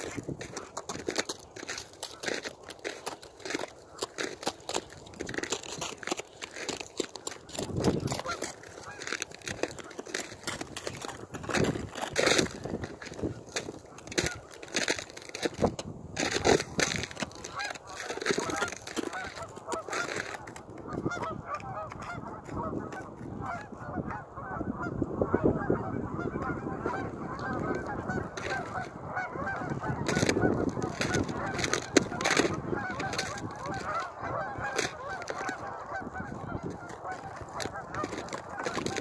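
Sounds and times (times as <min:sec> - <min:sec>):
geese honking: 0:07.4 - 0:15.7, 0:16.4 - 0:39.0.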